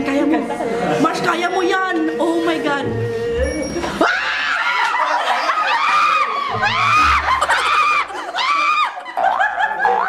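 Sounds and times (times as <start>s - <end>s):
young people shrieking and cheering: 3.7s - 9.2s.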